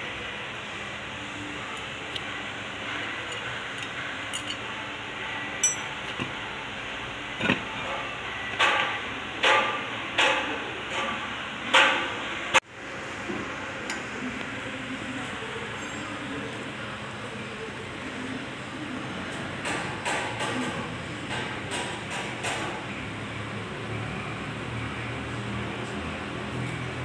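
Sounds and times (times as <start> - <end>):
workshop background noise: 0.0 - 27.0.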